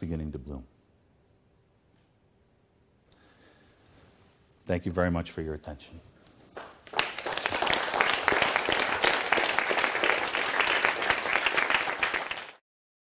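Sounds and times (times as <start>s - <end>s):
audience applauding: 6.6s - 12.6s.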